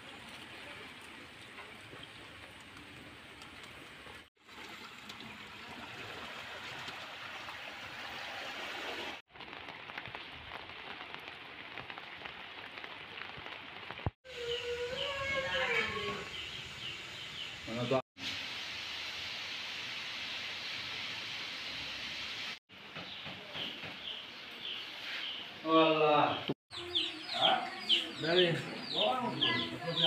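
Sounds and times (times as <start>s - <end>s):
steady rain falling: 9.2s - 22.6s.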